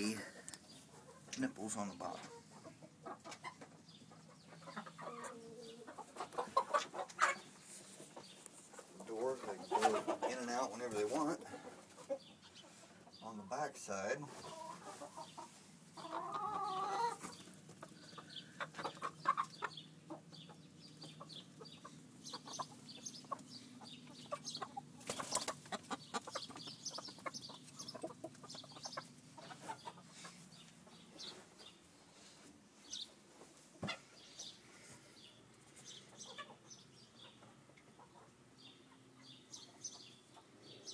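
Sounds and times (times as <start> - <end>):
chickens clucking: 0.0 - 40.9
chicken drawn-out call: 14.3 - 20.2.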